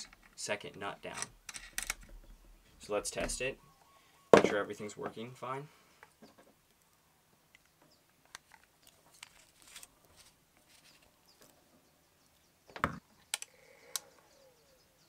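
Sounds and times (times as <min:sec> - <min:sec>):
cable handling rustles: 0:08.3 - 0:11.2.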